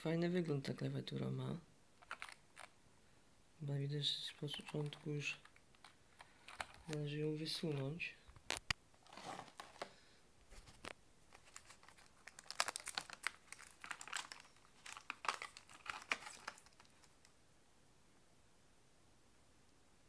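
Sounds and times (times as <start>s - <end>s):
plastic packaging crinkling: 2.0s - 2.8s, 4.4s - 7.8s, 8.4s - 9.9s, 10.5s - 17.3s.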